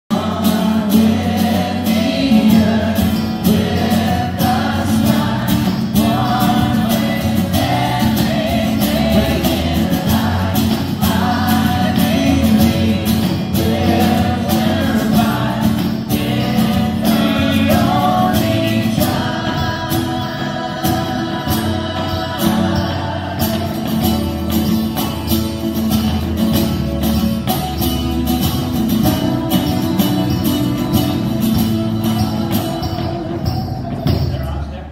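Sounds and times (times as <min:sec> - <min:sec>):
girls singing in chorus: 0:00.1 - 0:24.3
live band playing: 0:00.1 - 0:34.9.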